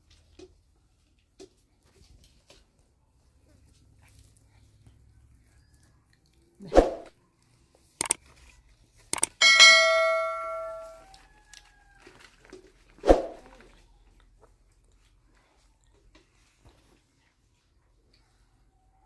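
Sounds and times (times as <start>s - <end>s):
struck metal object ringing: 9.4s - 11.0s.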